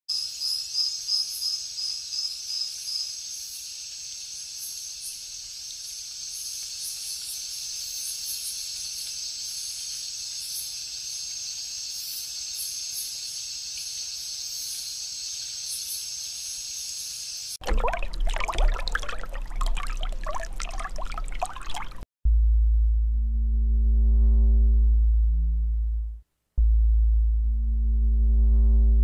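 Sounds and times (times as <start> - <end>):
insect chirping in quick pulses: 0.1 - 17.6
insects chirring: 0.1 - 17.6.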